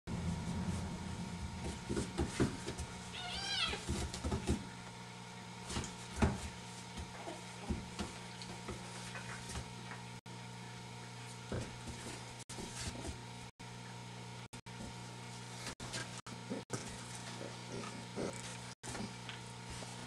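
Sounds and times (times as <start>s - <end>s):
puppy scuffling on tile floor: 1.6s - 4.8s
kitten meowing: 3.1s - 3.8s.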